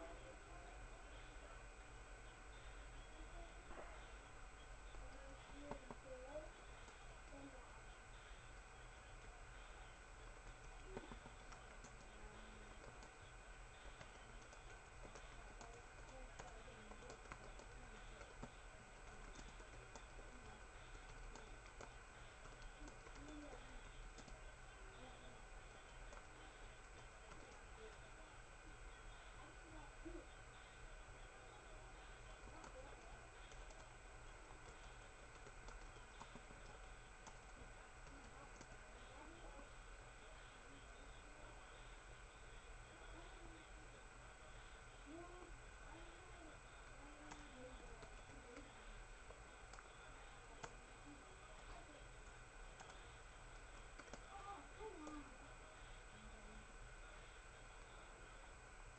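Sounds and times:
steady low hum: 0.0 - 58.9
laptop keyboard typing: 4.9 - 7.5, 8.2 - 28.2, 32.0 - 39.7, 45.1 - 55.3
laptop keyboard typing clicks: 14.0 - 23.6, 54.0 - 54.2.

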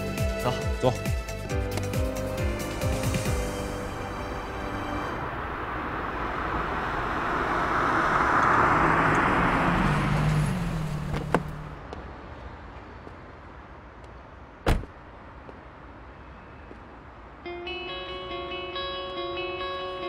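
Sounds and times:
car driving up and stopping: 3.2 - 11.8
car door opening click: 14.6 - 14.9
car door slamming: 14.6 - 15.0.

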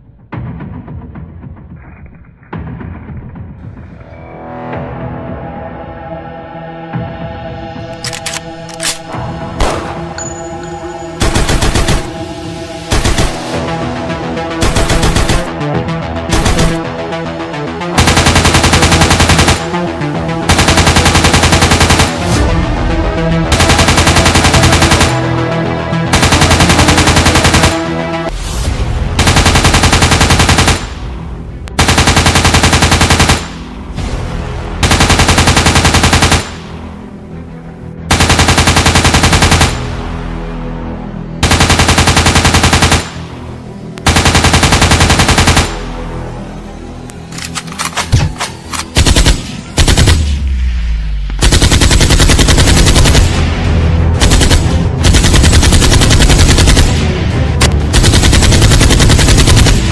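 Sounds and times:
background music: 0.0 - 59.9
automatic rifle fire: 14.6 - 15.5, 16.3 - 16.8, 34.8 - 36.7, 41.4 - 43.2.

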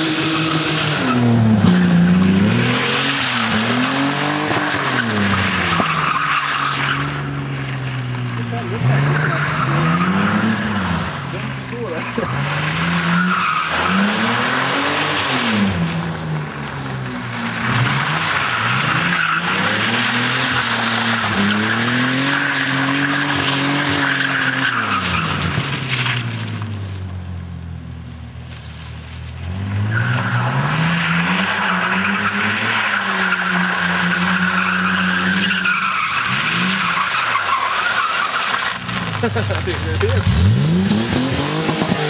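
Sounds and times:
tyres squealing on pavement: 0.0 - 27.0, 29.2 - 42.0
car engine revving: 0.0 - 42.0.

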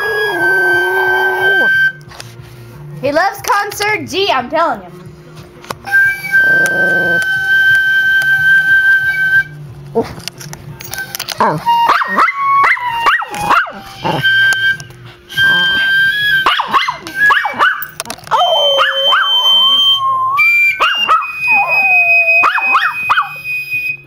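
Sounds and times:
dog howling: 0.0 - 2.0, 6.2 - 9.2, 11.3 - 23.6
flute playing high notes: 0.0 - 2.1, 5.8 - 9.6, 10.9 - 24.0
dog yipping: 11.4 - 14.3, 15.5 - 19.7, 20.7 - 23.4.

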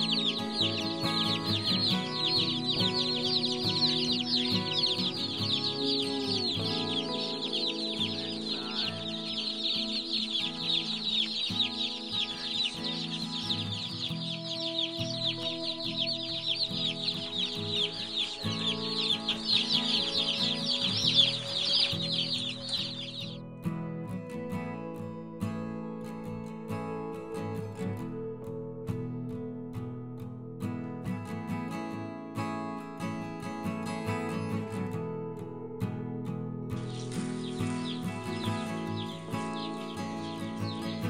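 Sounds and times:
chicks peeping: 0.0 - 23.4, 36.8 - 41.0
background music: 0.0 - 41.0.

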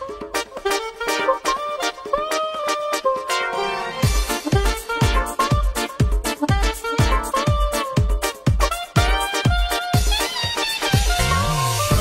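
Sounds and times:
held melody line: 0.0 - 12.0
kick drum beating: 4.0 - 12.0.

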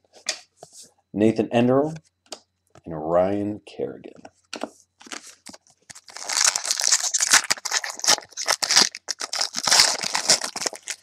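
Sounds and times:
foil wrapper crinkling and tearing: 5.0 - 11.0.

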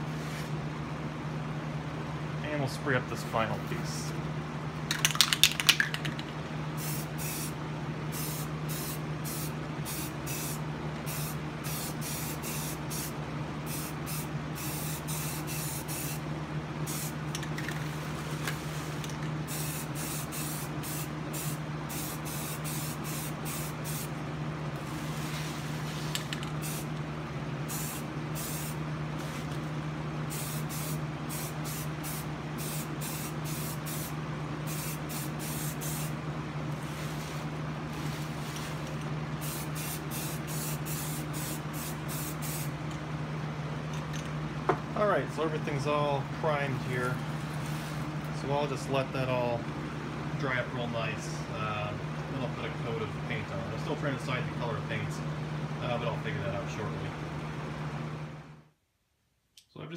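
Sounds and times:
steady low hum: 0.0 - 59.9
spray can rattle: 4.9 - 6.4
aerosol spray hissing: 13.7 - 16.2, 19.5 - 24.1, 27.7 - 29.4, 30.3 - 34.1, 34.7 - 36.1, 39.4 - 42.7.

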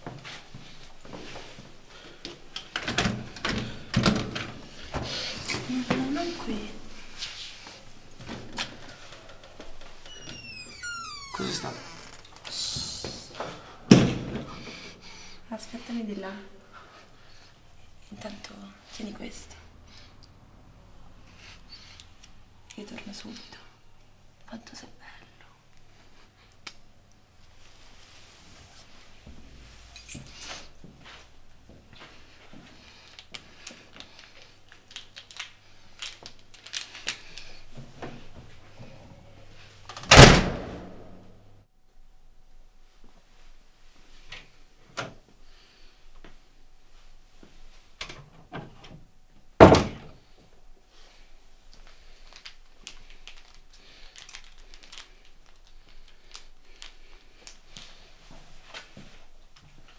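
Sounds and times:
small objects clicking and rustling: 33.1 - 37.5, 51.7 - 57.9.

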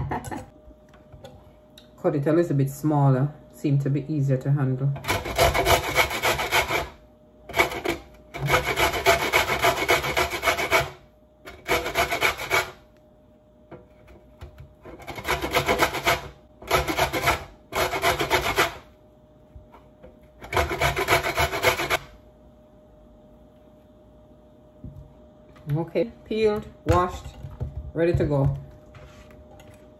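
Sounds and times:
grater scraping pumpkin skin: 5.0 - 12.8, 14.8 - 18.9, 20.4 - 22.1.

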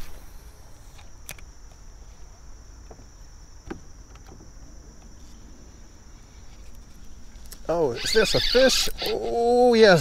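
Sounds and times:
insects chirring: 0.0 - 10.0
fishing reel clicks: 8.0 - 9.5.

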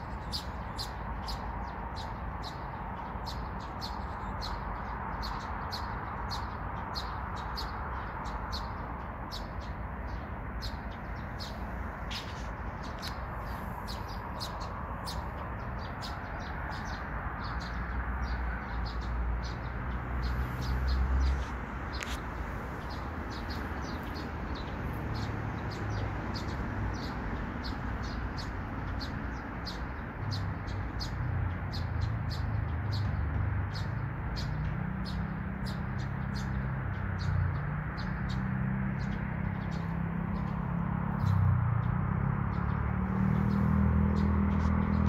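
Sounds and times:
birds chirping: 0.0 - 45.0.

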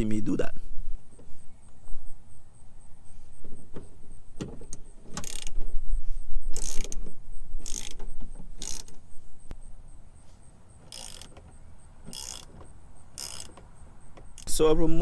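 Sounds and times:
ratchet wrench clicking: 5.2 - 5.6, 6.5 - 7.0, 7.6 - 9.0, 10.9 - 11.4, 12.1 - 14.6.

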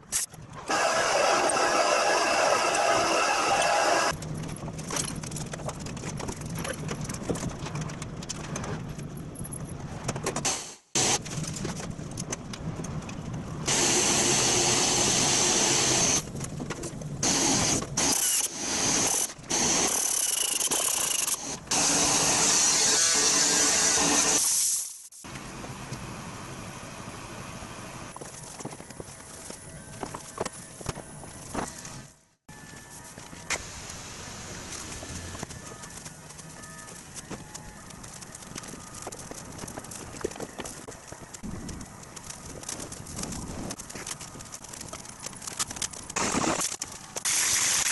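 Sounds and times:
drill press boring metal: 0.7 - 4.1
power tool bursts: 0.7 - 4.1.

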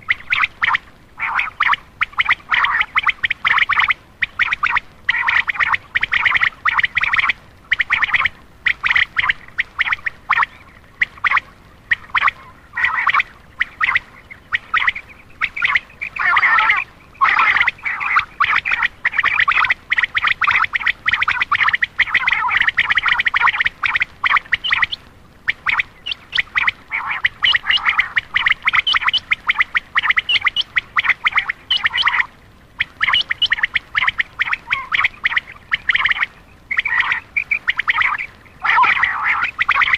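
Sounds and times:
quail calling in short notes: 16.1 - 18.9, 38.0 - 39.9.

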